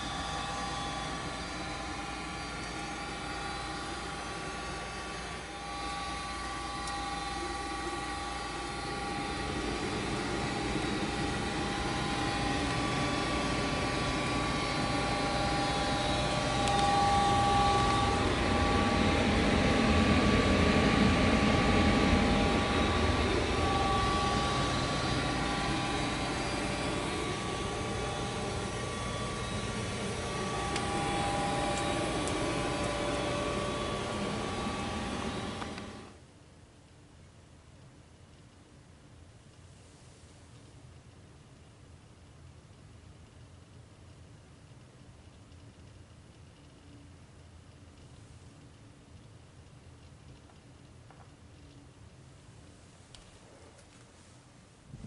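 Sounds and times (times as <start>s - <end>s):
gas furnace running: 0.0s - 36.2s
faint constant whine: 0.0s - 55.0s.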